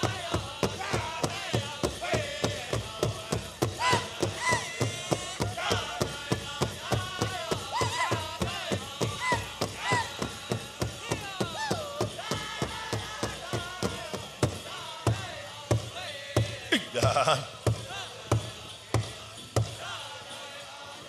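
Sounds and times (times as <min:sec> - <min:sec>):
big drum steady beat: 0:00.0 - 0:19.8
high-pitched group singing: 0:00.0 - 0:21.0.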